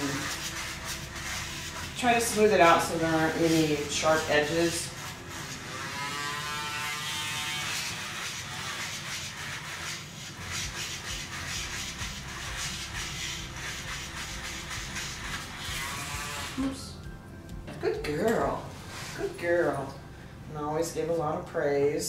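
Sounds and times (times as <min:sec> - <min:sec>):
electric nail grinder buzzing: 0:00.0 - 0:16.9.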